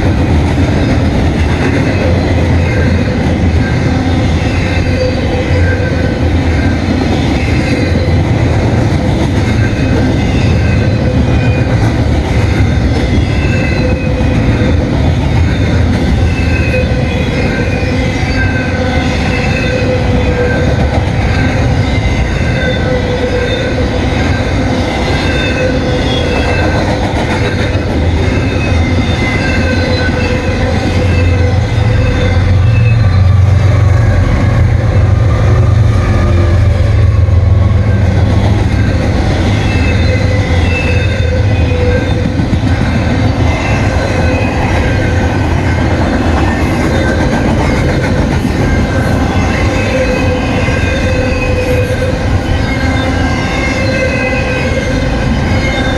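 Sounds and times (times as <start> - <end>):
diesel locomotive drone: 0.0 - 55.9
rumble of freight cars: 0.0 - 55.9
train wheels squealing: 0.7 - 8.5, 9.2 - 55.9.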